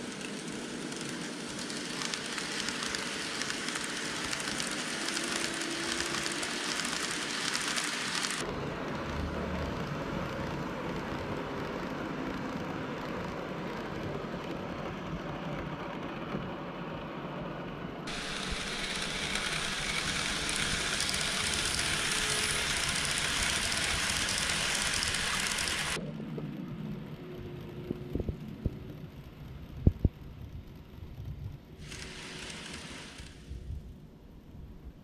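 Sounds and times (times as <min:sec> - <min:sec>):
model train wheels rumbling on rails: 0:00.0 - 0:34.7
bright hiss: 0:18.1 - 0:26.0, 0:31.8 - 0:33.7
motor hum: 0:18.1 - 0:33.9.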